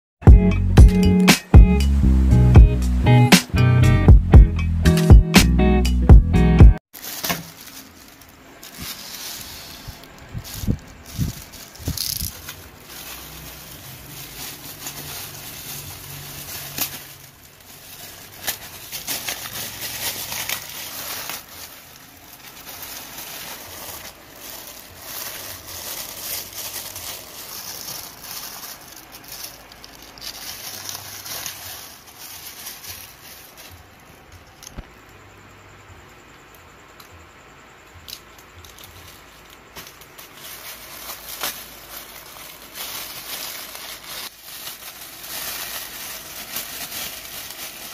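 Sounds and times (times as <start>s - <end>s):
plastic packaging crinkling: 6.9s - 34.9s, 38.1s - 47.9s.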